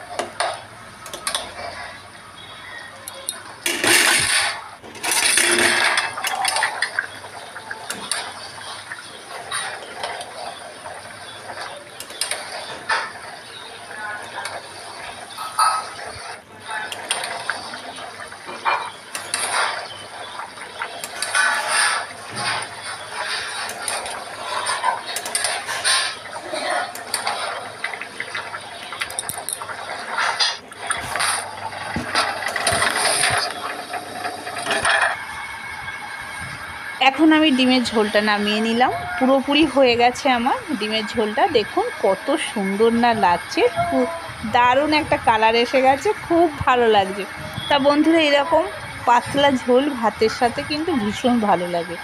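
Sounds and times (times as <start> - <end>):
curry boiling in a metal pan: 0.0 - 52.0
spatula scraping a pan: 21.1 - 27.7.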